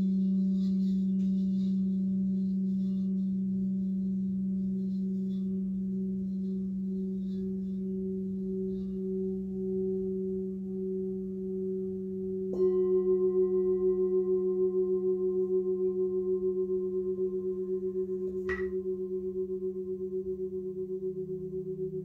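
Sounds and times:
singing bowls ringing: 0.0 - 22.0
singing bowl struck with mallet: 7.5 - 22.0
bright metallic tap: 18.3 - 18.9.

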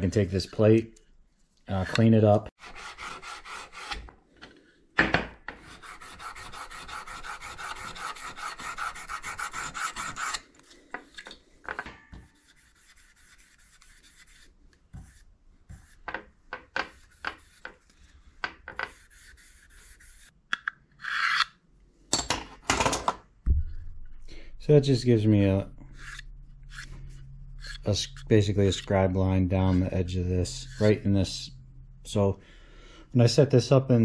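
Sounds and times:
rubbing strokes on metal plate: 12.2 - 20.3, 25.8 - 29.0, 29.7 - 31.5
marker strokes: 12.4 - 16.1.

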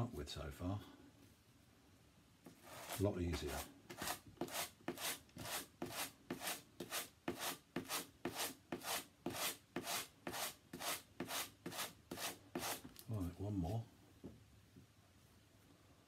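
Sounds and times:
brush rasping through cord fibres: 2.5 - 13.8.

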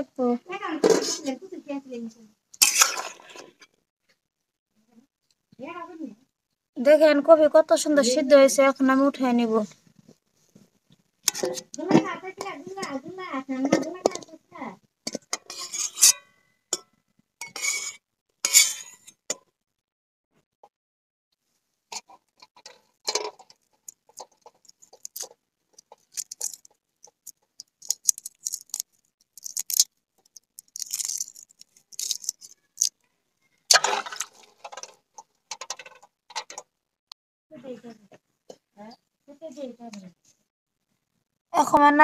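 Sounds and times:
metal spatula scraping pot: 0.8 - 1.4, 2.6 - 3.7, 11.2 - 14.3, 15.1 - 19.3, 21.9 - 28.8, 33.7 - 36.6
eggshell cracking: 22.5 - 33.0.

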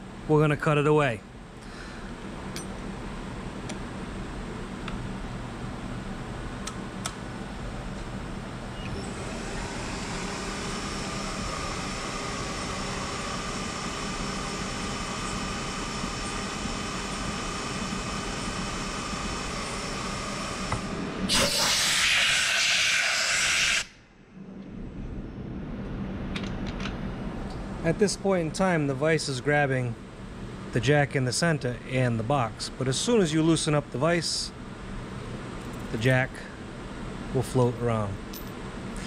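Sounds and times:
milling machine whine: 1.8 - 38.1
compressed air gun hissing: 21.3 - 23.9.

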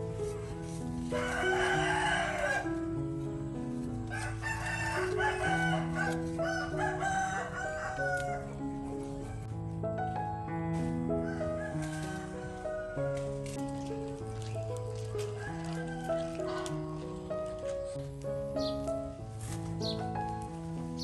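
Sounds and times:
background music with held notes: 0.0 - 21.0
rooster crowing: 1.1 - 2.9, 4.0 - 8.6, 11.2 - 13.2, 15.0 - 17.3.

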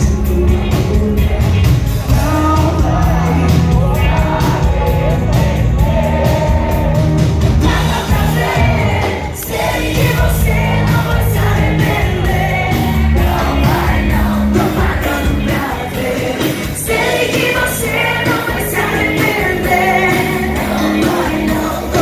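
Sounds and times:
pop backing track with heavy bass: 0.0 - 22.0
woman singing into a microphone: 10.1 - 22.0.

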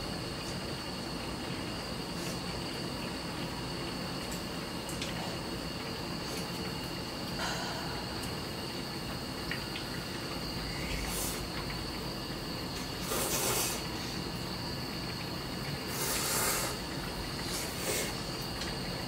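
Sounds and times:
insects chirping: 0.0 - 19.0
people slurping noodles: 13.0 - 13.9, 15.9 - 16.8.

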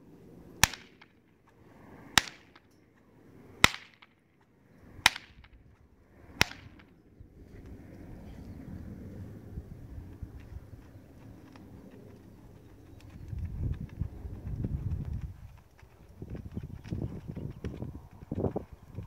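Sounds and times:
whip swishing: 0.6 - 1.1, 3.6 - 4.1, 5.1 - 5.5, 6.4 - 6.9
whip cracking: 0.6 - 1.2, 2.2 - 2.7, 3.6 - 4.2, 5.0 - 5.6, 6.3 - 6.9.

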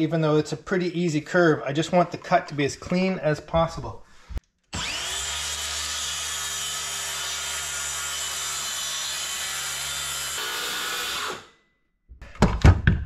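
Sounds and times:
circular saw cutting wood: 4.7 - 11.6.

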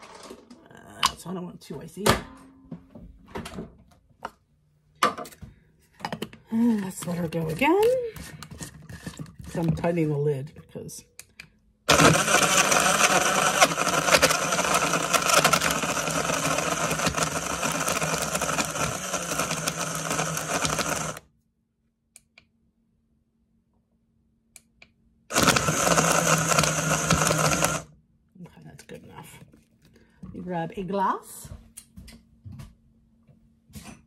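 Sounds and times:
blender crushing ice: 11.9 - 21.2, 25.3 - 27.9.

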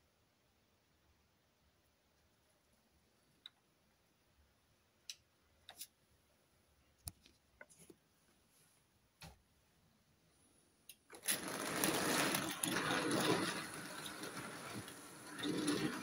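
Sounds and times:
model train whirring on track: 11.1 - 16.0.

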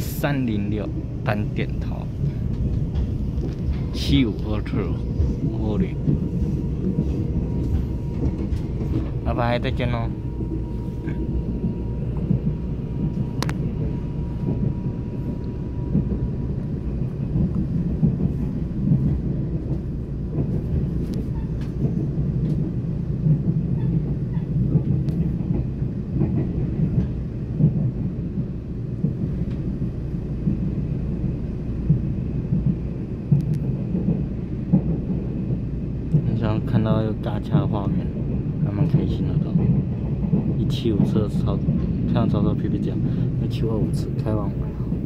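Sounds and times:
train wheels rumbling on rails: 0.0 - 45.0.

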